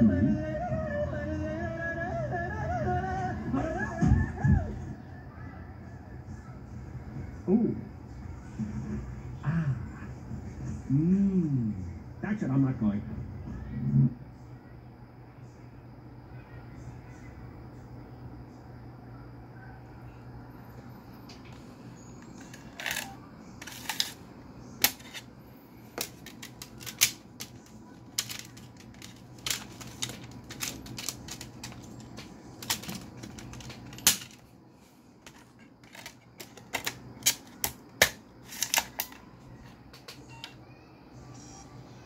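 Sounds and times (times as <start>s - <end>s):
plastic disc case clicks and snaps: 24.8s - 25.2s, 26.0s - 34.4s, 35.3s - 39.2s.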